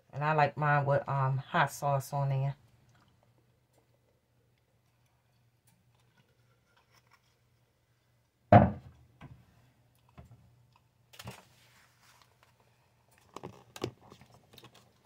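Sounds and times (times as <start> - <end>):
sharp thump: 8.5 - 8.9.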